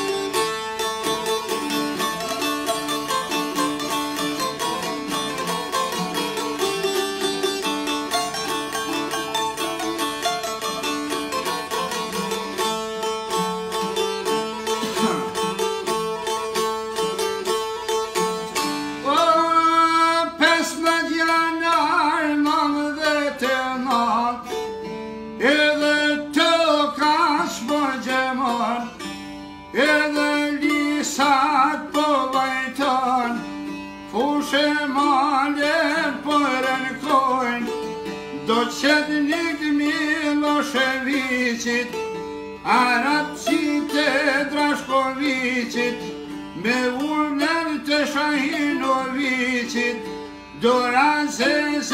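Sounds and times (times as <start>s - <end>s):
plucked lutes: 0.0s - 51.9s
man singing: 14.7s - 15.6s, 18.8s - 24.8s, 25.4s - 29.1s, 29.7s - 51.9s.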